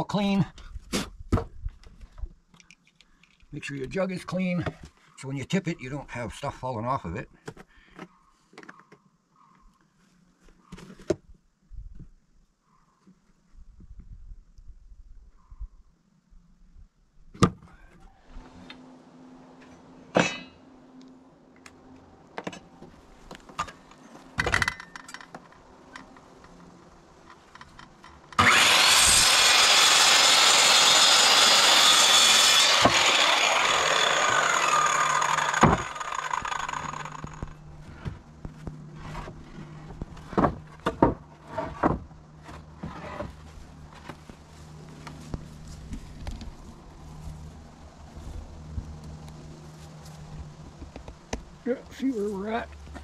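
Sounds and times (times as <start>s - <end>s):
circular saw cutting wood: 27.8s - 37.6s.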